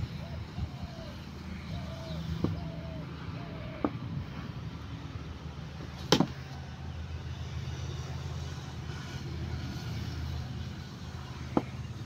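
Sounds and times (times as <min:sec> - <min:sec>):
cricket bat striking ball: 0:06.1 - 0:06.4.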